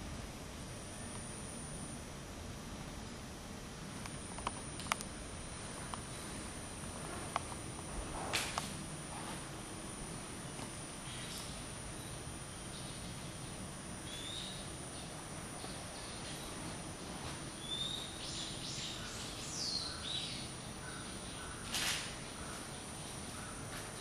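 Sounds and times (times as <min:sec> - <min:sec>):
steady high hiss: 0:00.0 - 0:24.0
birds chirping: 0:11.0 - 0:24.0.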